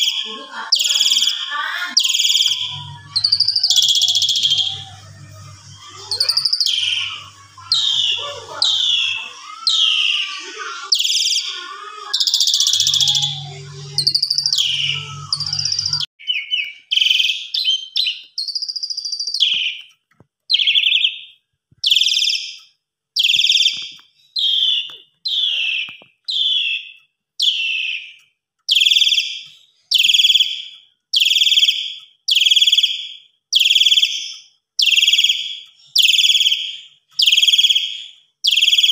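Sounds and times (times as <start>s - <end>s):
starling chattering calls: 0.0s - 16.1s, 23.2s - 29.1s.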